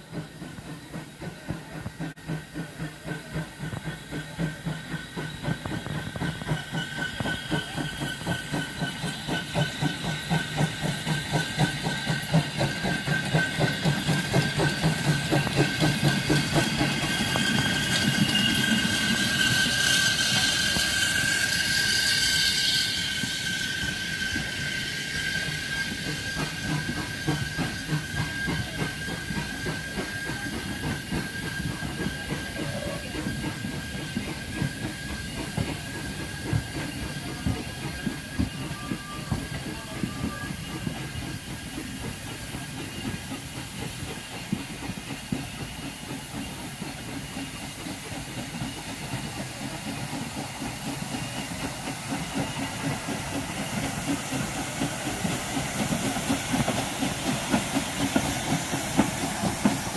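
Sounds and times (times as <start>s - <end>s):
steam hissing: 0.0s - 59.9s
steam locomotive exhaust beats: 0.0s - 59.9s
train wheels clicking over rail joints: 0.0s - 59.9s.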